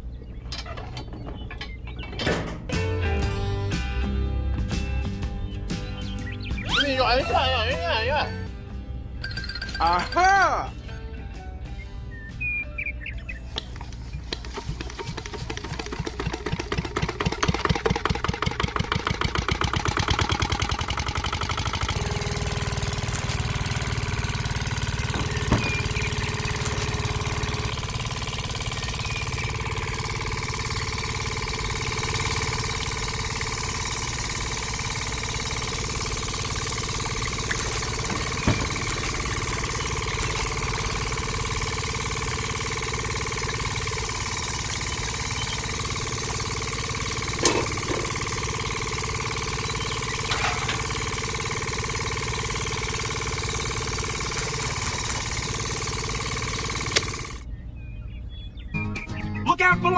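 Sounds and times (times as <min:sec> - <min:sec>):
small motor whirring: 0:20.9 - 0:57.5.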